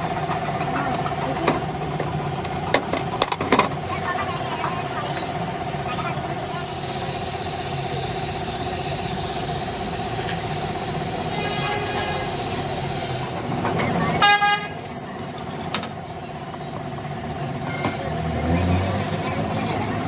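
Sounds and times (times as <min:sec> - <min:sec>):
traffic noise: 0:00.0 - 0:20.0
vehicle horn honk: 0:11.3 - 0:12.5, 0:14.1 - 0:14.8.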